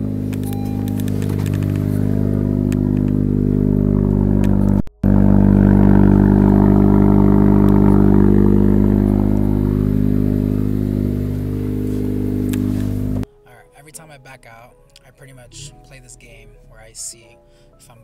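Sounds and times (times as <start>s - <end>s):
car engine idling: 0.0s - 13.2s.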